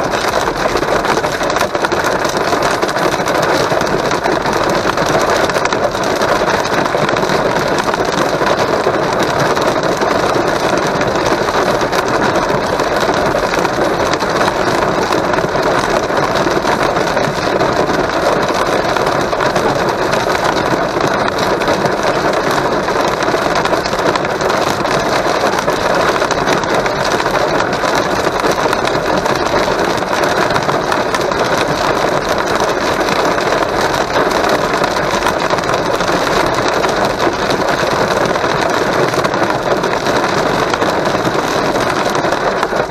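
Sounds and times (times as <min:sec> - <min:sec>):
rain and hail on car roof: 0:00.0 - 0:42.9.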